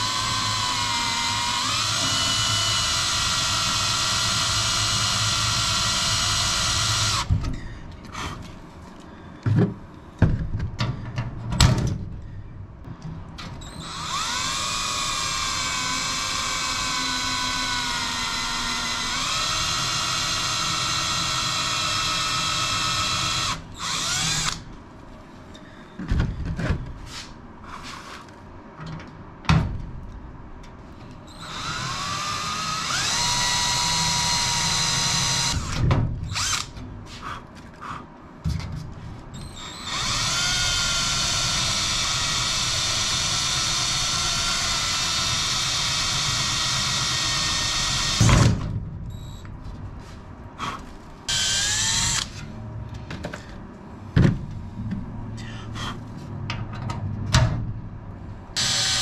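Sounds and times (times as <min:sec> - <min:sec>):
cordless drill whining: 0:00.0 - 0:07.3, 0:13.6 - 0:24.6, 0:31.3 - 0:35.7, 0:36.3 - 0:36.7, 0:39.4 - 0:48.2, 0:51.3 - 0:52.4, 0:58.6 - 0:59.0.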